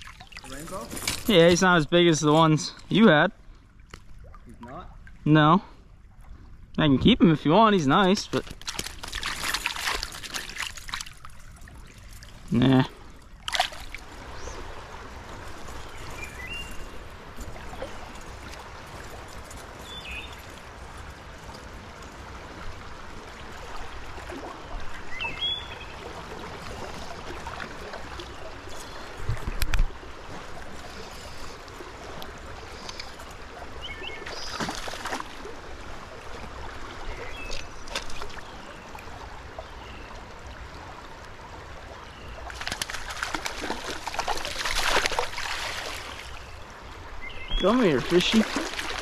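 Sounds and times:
stream water running: 0:00.0 - 0:49.0
fish splashing at surface: 0:08.4 - 0:11.4, 0:13.4 - 0:14.0, 0:42.4 - 0:46.3, 0:48.0 - 0:49.0.

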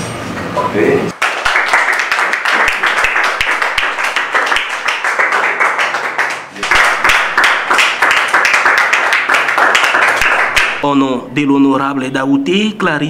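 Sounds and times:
people clapping: 0:01.1 - 0:10.8.

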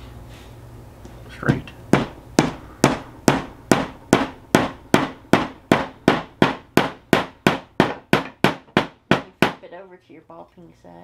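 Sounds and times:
hammer tapping nail into wood: 0:01.5 - 0:09.6.

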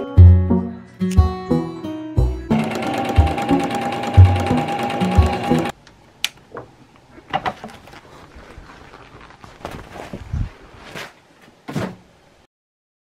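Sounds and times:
sewing machine stitching: 0:02.5 - 0:05.7.

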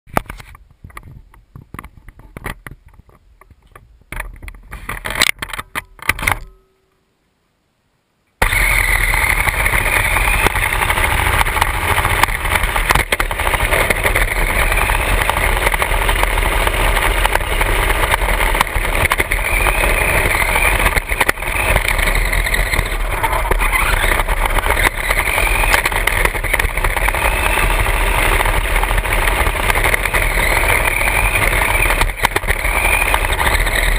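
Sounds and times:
rc car motor whining: 0:08.4 - 0:33.9
tyres rolling on asphalt: 0:08.4 - 0:33.9.

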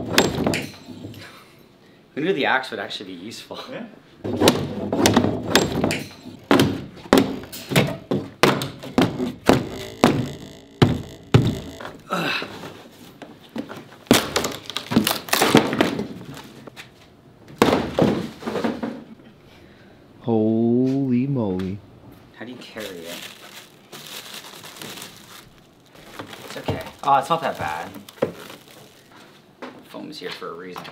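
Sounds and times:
wooden crate thunks and knocks: 0:00.0 - 0:01.1, 0:04.2 - 0:12.0, 0:14.1 - 0:16.3, 0:17.5 - 0:19.1, 0:26.0 - 0:28.8.

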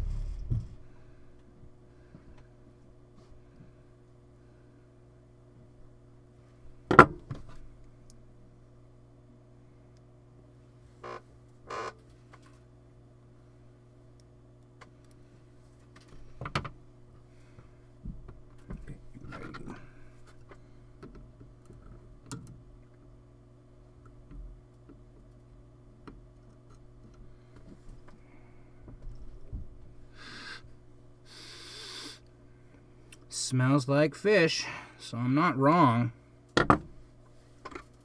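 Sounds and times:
steady low hum: 0:00.0 - 0:38.0
person sniffing: 0:30.2 - 0:30.6, 0:31.3 - 0:32.2.

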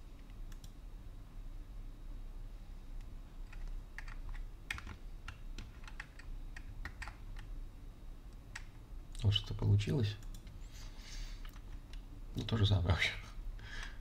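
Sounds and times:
computer keyboard keys clicking: 0:03.4 - 0:07.5, 0:08.5 - 0:08.8.

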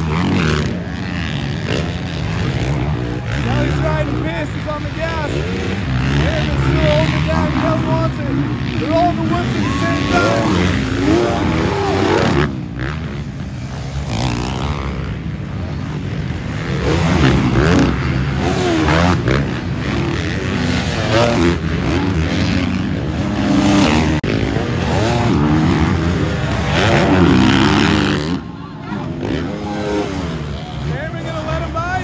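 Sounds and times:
dirt bike engines revving: 0:00.0 - 0:32.0.

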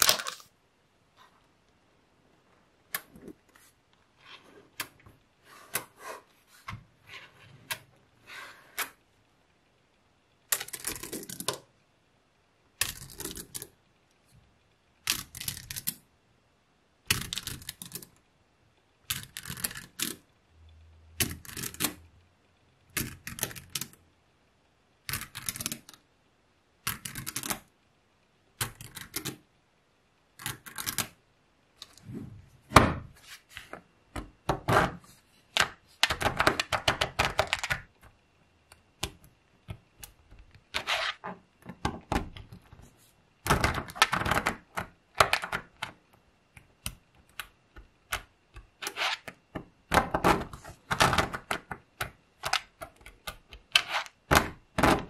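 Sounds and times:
magnetic balls clicking: 0:19.0 - 0:22.1, 0:26.8 - 0:27.7.

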